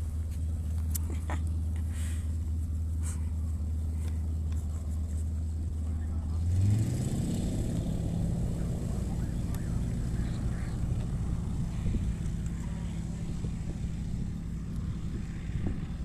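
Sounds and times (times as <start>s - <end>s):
propeller plane engine drone: 0.0s - 16.0s.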